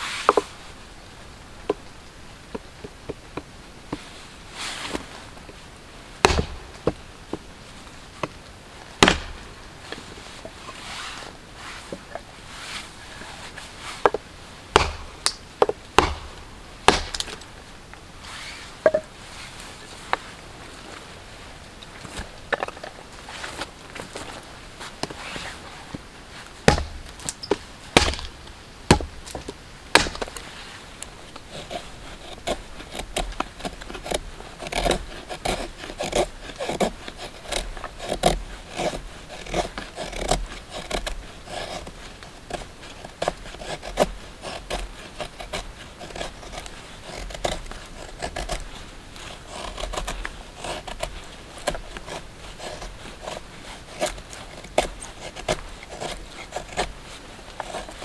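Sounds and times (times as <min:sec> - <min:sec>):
knife scraping along stick: 0:00.0 - 0:00.7, 0:03.9 - 0:05.5, 0:09.0 - 0:17.6, 0:18.2 - 0:21.0, 0:22.0 - 0:58.0
hatchet chopping kindling: 0:06.2 - 0:07.4, 0:09.0 - 0:09.6, 0:14.0 - 0:17.5, 0:26.6 - 0:30.4, 0:49.2 - 0:53.4.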